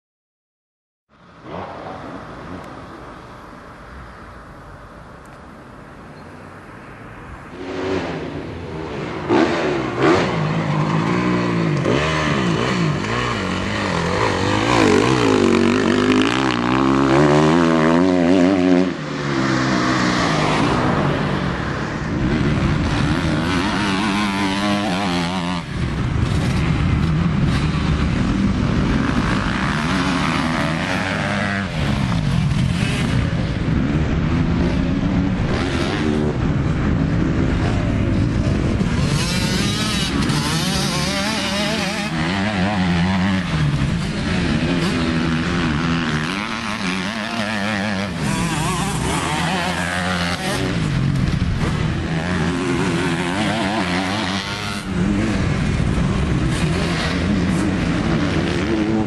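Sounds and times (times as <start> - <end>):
motocross bike engines revving: 7.5 - 59.0.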